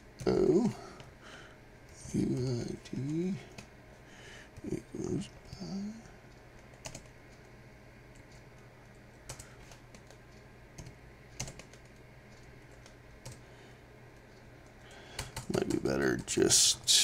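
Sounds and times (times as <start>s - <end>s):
computer keyboard keystrokes: 6.6s - 7.5s, 8.1s - 10.2s, 10.8s - 13.4s, 15.2s - 16.4s.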